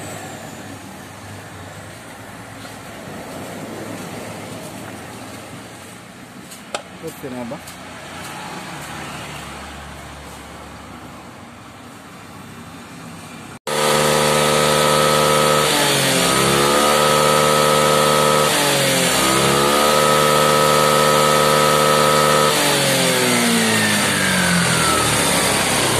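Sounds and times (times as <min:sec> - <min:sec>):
scooter engine running: 0:13.7 - 0:25.9.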